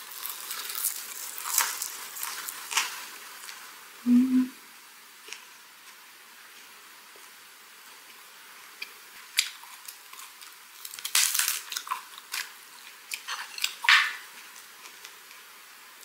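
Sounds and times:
cabbage leaf crackling: 0.0 - 3.6, 9.2 - 15.4.

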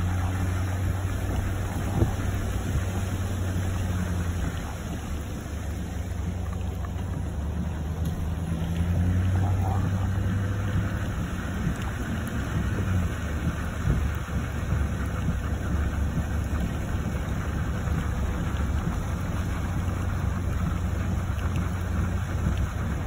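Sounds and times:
car engine and tyres droning: 0.0 - 23.0
tyres hissing on wet pavement: 0.0 - 23.0.

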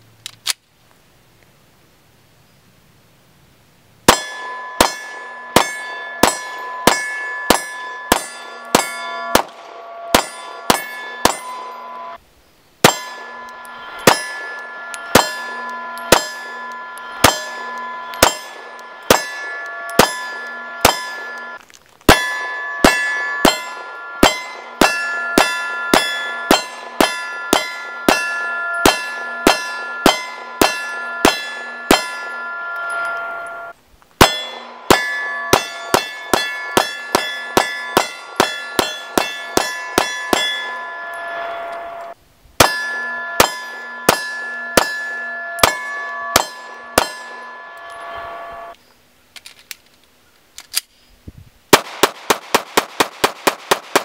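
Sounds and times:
steel target ringing: 4.0 - 12.2, 12.8 - 48.9
pistol shots: 4.1 - 11.8, 51.7 - 54.0.

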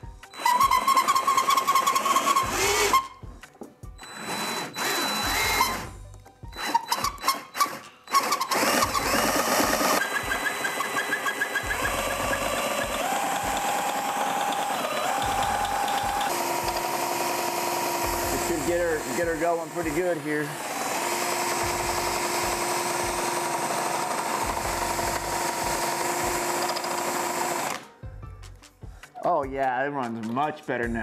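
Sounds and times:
cordless drill motor whine: 0.2 - 3.1, 4.0 - 27.8.

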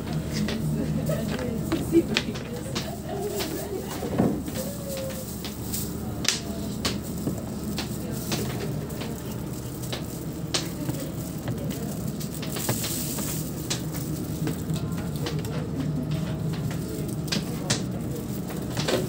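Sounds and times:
low background hum: 0.0 - 19.0.

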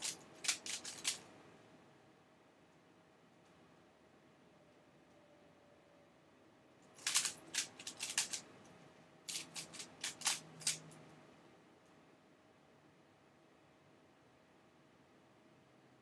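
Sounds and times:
plastic puzzle cube clacking: 0.0 - 1.3, 7.0 - 8.4, 9.3 - 11.0.

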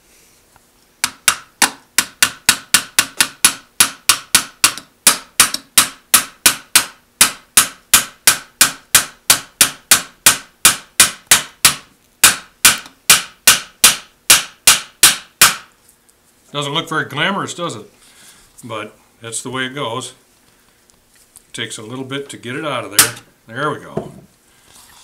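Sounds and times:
small hammer tapping on metal: 1.0 - 15.6.

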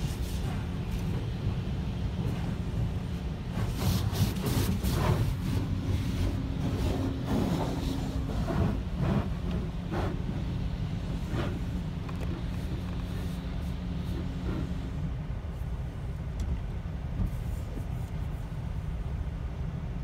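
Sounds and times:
water jets spraying on car: 0.0 - 16.2, 17.2 - 19.0
low hum of wash machinery: 0.0 - 20.0.

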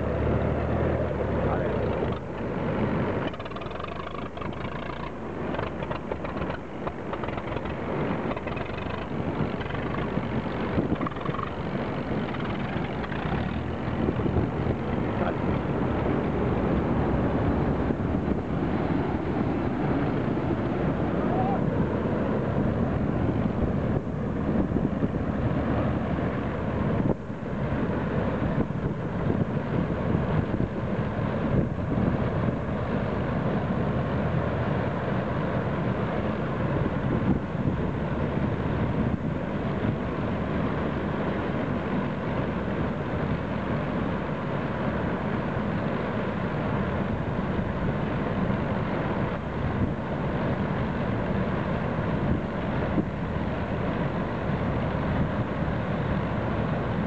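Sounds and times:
tractor engine running: 0.0 - 57.0
combine harvester mechanical clatter: 1.4 - 17.0.

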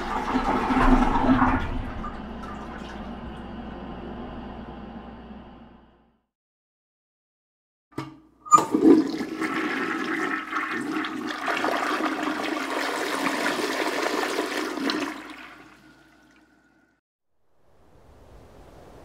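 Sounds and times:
toilet flush clunk: 0.0 - 3.9, 8.0 - 17.0.

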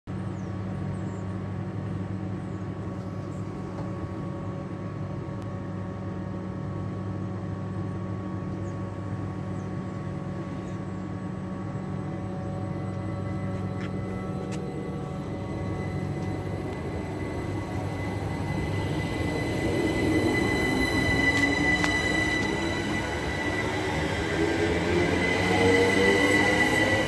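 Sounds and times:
electrical hum and buzz: 0.1 - 27.0
whining electric tones: 11.1 - 27.0.

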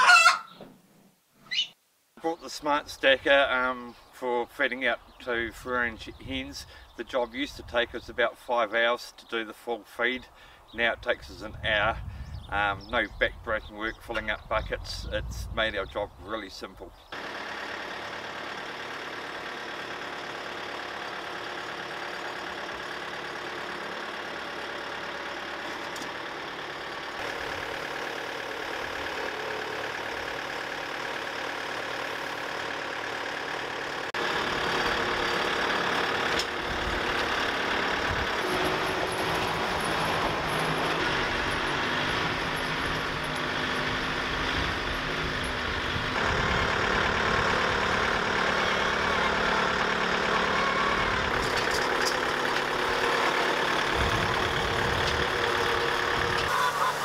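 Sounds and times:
diesel tractor engine running: 4.4 - 8.7, 16.8 - 57.0.

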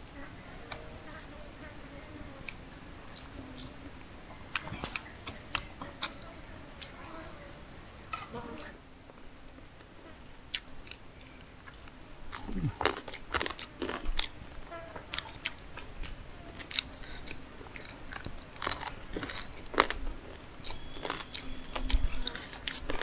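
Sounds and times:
person chewing and crunching: 11.6 - 14.4, 15.0 - 23.0.

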